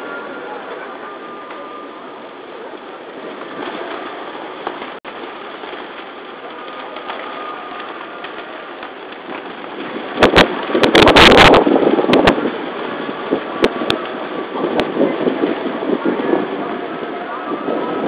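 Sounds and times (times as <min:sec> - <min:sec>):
crowd and street noise: 0:00.0 - 0:18.0
wind on microphone: 0:09.2 - 0:18.0.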